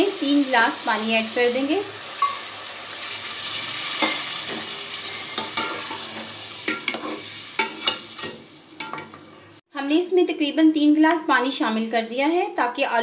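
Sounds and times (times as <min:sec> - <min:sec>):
loud sizzle in a pot: 0:00.0 - 0:10.1.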